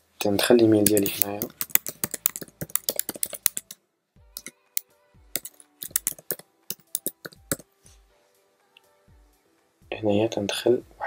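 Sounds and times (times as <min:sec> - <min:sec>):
typing on computer keyboard: 0:00.3 - 0:03.8, 0:05.3 - 0:07.6.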